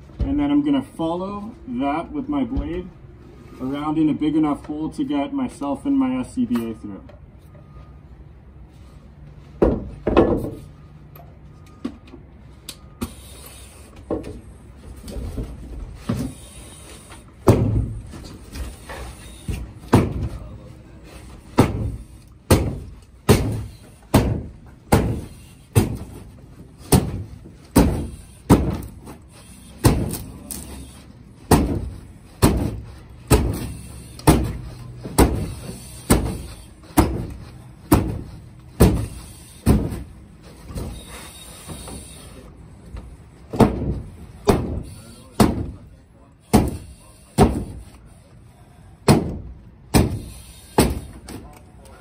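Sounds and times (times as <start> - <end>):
axe chopping into wooden wall: 17.4 - 17.9, 21.6 - 26.2, 26.9 - 28.9, 29.8 - 30.2, 31.5 - 33.6, 35.2 - 35.5, 37.0 - 37.3, 37.9 - 38.2, 43.5 - 44.8, 45.4 - 45.8, 49.1 - 50.2.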